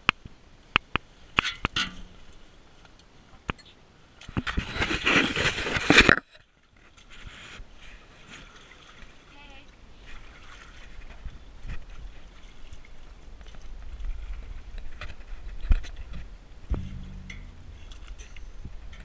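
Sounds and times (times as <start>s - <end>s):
low rumble: 16.7s - 19.0s.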